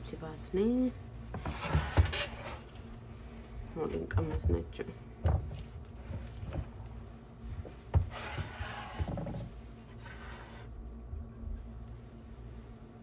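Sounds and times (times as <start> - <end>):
spatula scraping and rubbing: 7.4 - 10.7.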